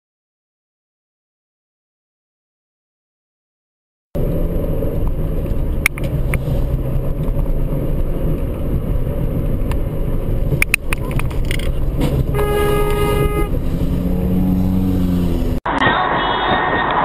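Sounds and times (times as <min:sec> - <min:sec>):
car road and engine rumble: 0:04.2 - 0:17.0
car horn blaring: 0:12.2 - 0:16.7.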